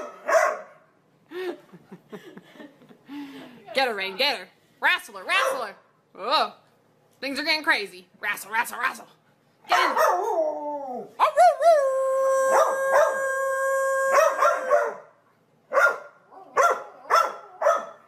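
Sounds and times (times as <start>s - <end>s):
dog barking: 0.0s - 0.8s, 5.4s - 5.7s, 9.7s - 10.3s, 14.1s - 15.1s, 15.7s - 18.0s
dog howling: 10.0s - 15.1s.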